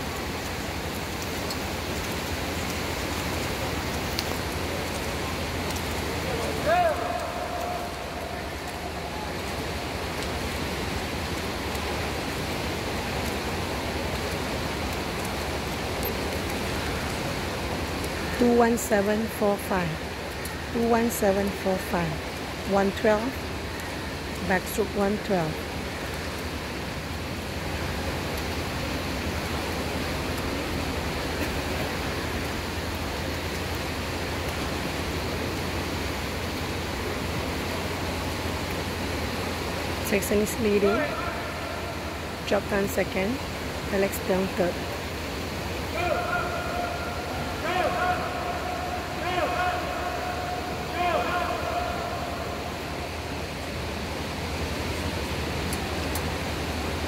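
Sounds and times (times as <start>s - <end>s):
pool water rushing noise: 0.0s - 57.0s.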